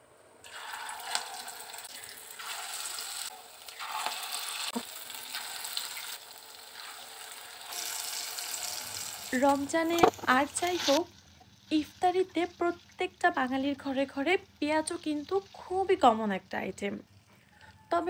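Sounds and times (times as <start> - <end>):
fritters sizzling in hot oil: 0.5 - 16.1.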